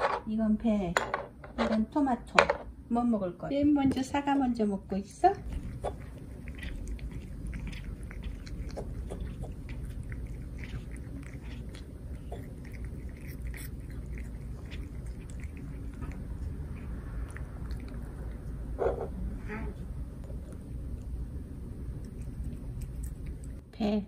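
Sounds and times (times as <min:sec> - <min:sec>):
cat chewing apple: 0:05.4 - 0:23.6.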